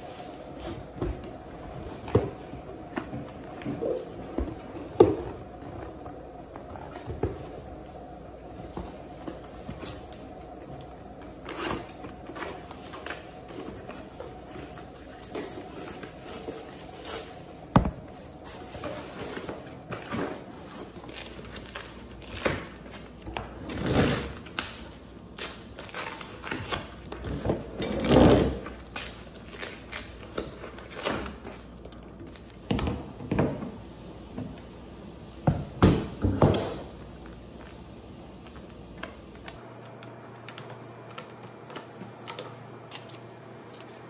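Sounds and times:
plastic wrapping rustling: 0:00.0 - 0:32.7, 0:37.0 - 0:44.0.

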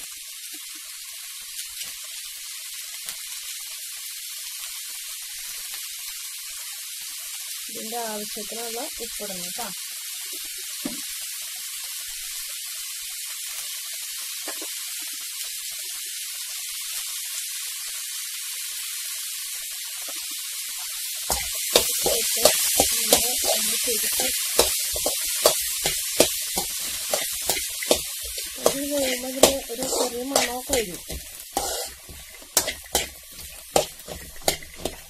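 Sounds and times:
vegetables sizzling in a pan: 0:00.0 - 0:35.0
metal spoon scraping a pan: 0:21.3 - 0:35.0.

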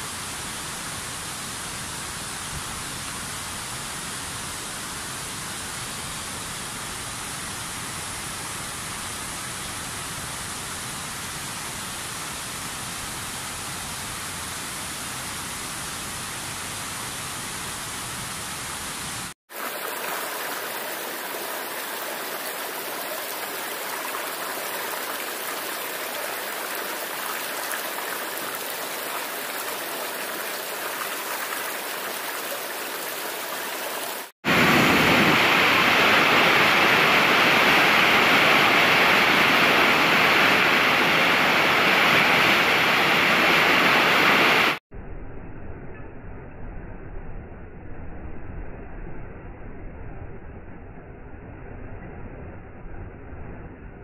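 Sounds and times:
water pouring over falls: 0:19.5 - 0:44.8.

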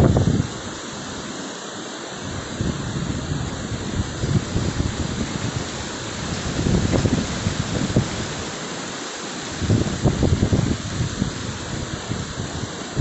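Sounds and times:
wind buffeting microphone: 0:00.0 - 0:00.7, 0:02.2 - 0:08.5, 0:09.6 - 0:13.0
heavy rain hissing: 0:00.0 - 0:13.0.

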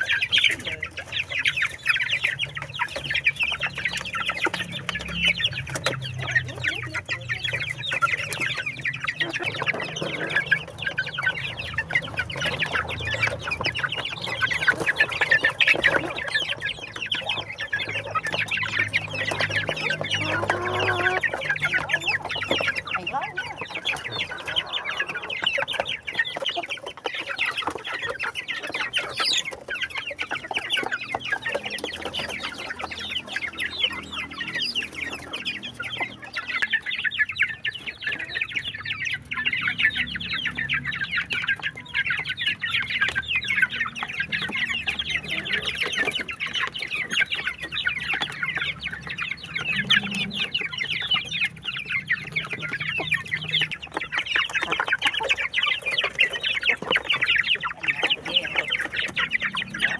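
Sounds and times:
chickens clucking: 0:00.0 - 0:59.9.

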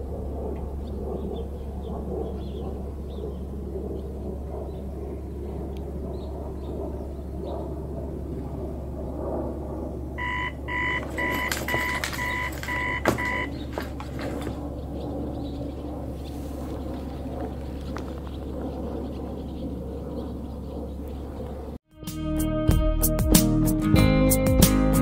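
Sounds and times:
steady low hum: 0:00.0 - 0:21.8
electronic beeper beeping: 0:10.2 - 0:13.5.

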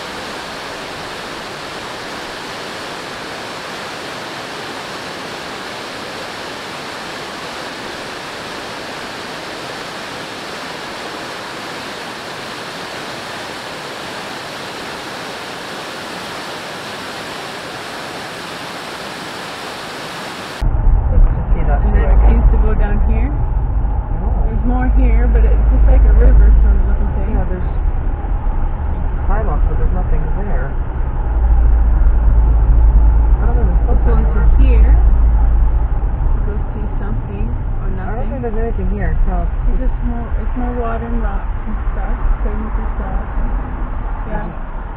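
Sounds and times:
water rushing: 0:00.0 - 0:20.6.

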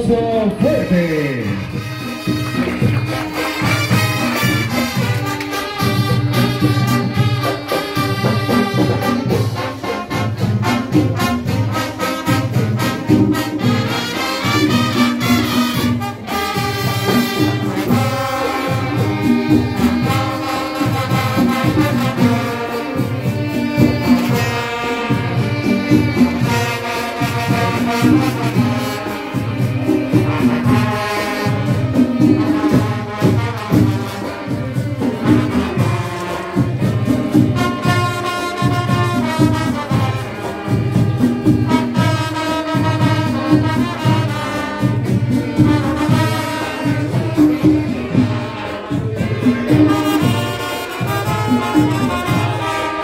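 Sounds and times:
driving drum beat: 0:00.0 - 0:53.0
marching band brass melody: 0:00.0 - 0:53.0.

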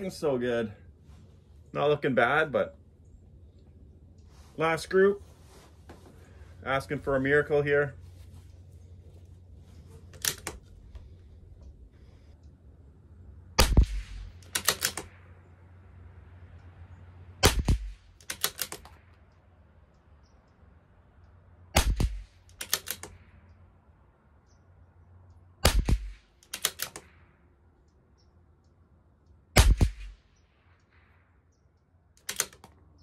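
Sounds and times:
rifle bolt metallic clicks: 0:10.0 - 0:11.8, 0:13.6 - 0:15.3, 0:17.5 - 0:20.1, 0:21.2 - 0:23.3, 0:25.3 - 0:28.0, 0:32.2 - 0:33.0
rifle shots: 0:13.6 - 0:15.4, 0:17.4 - 0:18.9, 0:21.7 - 0:23.2, 0:25.6 - 0:27.3, 0:29.5 - 0:31.1.

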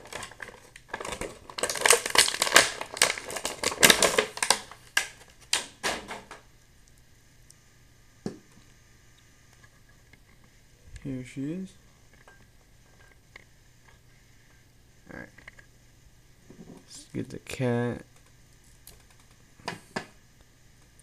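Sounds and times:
stiff plastic packaging crackling: 0:00.0 - 0:06.5.

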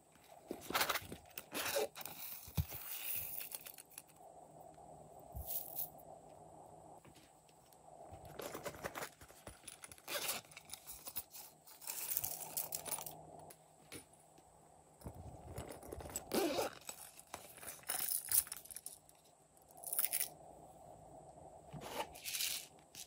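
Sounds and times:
pouches rustling and crinkling: 0:00.1 - 0:04.1, 0:07.0 - 0:13.1, 0:15.0 - 0:19.1
small clicks and scrapes: 0:00.4 - 0:04.2, 0:08.2 - 0:14.0.

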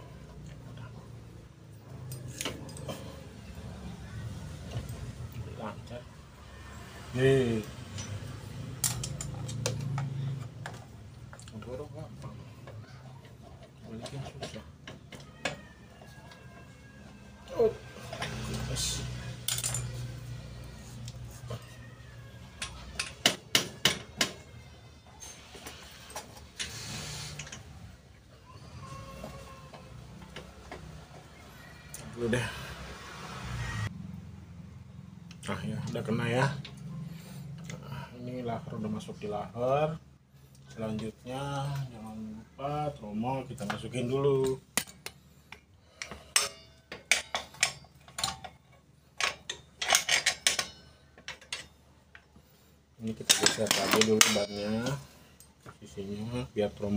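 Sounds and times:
metal parts clinking: 0:07.8 - 0:11.6, 0:19.3 - 0:20.3, 0:46.0 - 0:51.8, 0:53.1 - 0:55.2.

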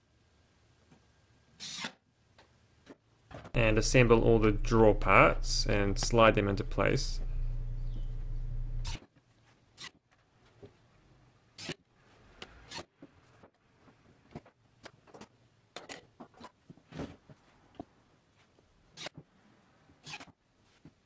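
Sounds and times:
steady low hum: 0:03.6 - 0:09.0.

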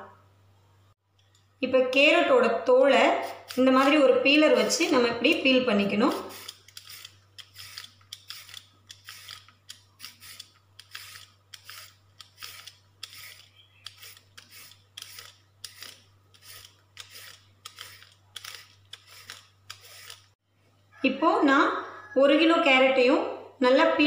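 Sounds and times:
peeler scraping carrot: 0:03.1 - 0:20.4.

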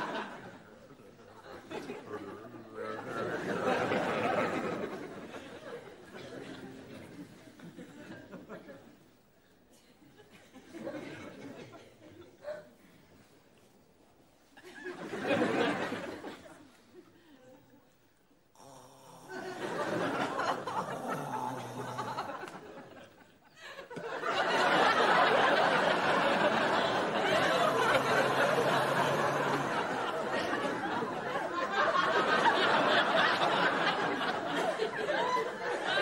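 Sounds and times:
studio audience laughing: 0:00.0 - 0:09.1, 0:14.6 - 0:17.7, 0:18.6 - 0:36.0.

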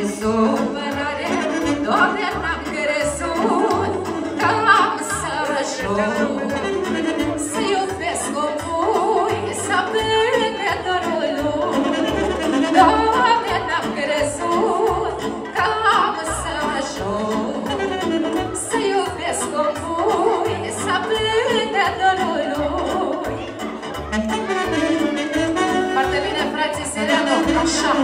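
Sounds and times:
woman singing into microphone: 0:00.0 - 0:23.4, 0:25.8 - 0:28.0
saxophones: 0:23.8 - 0:28.0.

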